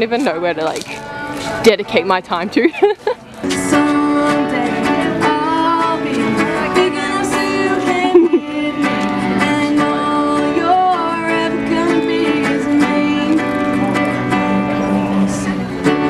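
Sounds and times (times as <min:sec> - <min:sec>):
guitar strumming: 0:00.0 - 0:16.0
woman singing: 0:03.6 - 0:16.0.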